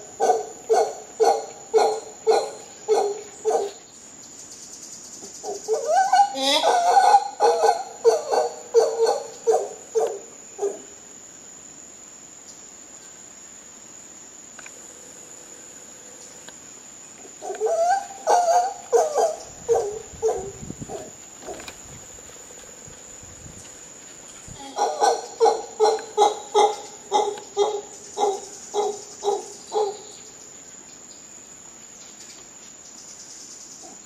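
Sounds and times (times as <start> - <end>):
howler monkey calls: 0.0 - 3.8, 5.3 - 11.0, 17.3 - 21.7, 24.6 - 30.3
high insect drone: 0.0 - 34.0.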